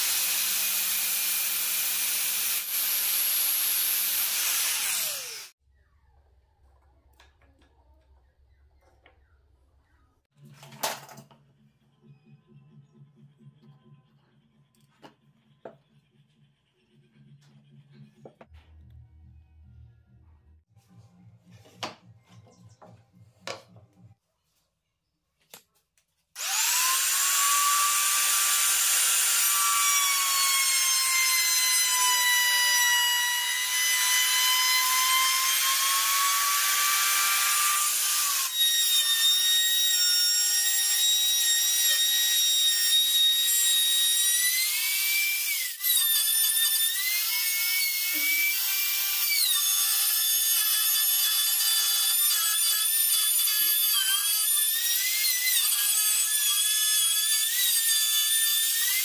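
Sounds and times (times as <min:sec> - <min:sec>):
trim router whining: 0:00.0 - 0:05.5, 0:26.4 - 0:40.0.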